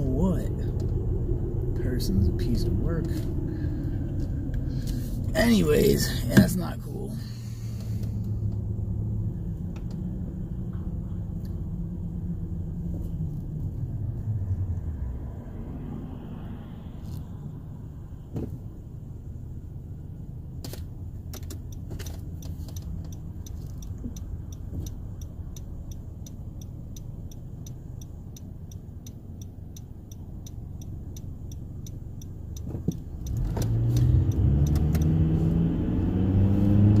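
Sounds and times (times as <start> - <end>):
car engine and road rumble: 0.0 - 37.0
turn signal ticking: 20.5 - 37.0.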